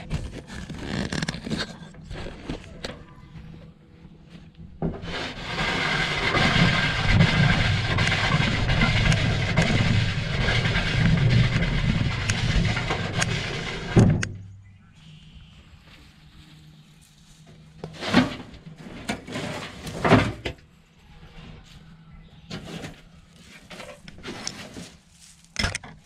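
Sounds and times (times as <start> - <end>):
wheelbarrow rolling on grass: 4.2 - 14.3, 15.6 - 26.0
wheelbarrow set down thump: 17.8 - 20.6.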